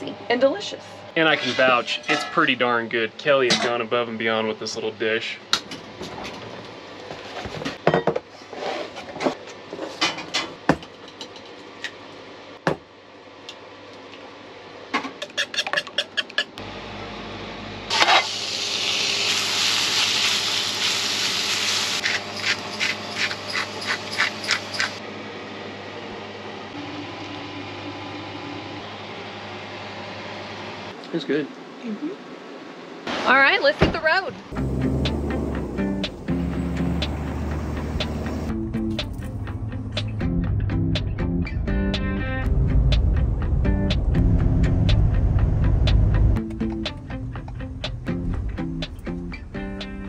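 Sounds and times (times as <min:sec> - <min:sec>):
spinach sizzling in skillet: 0:17.9 - 0:22.1.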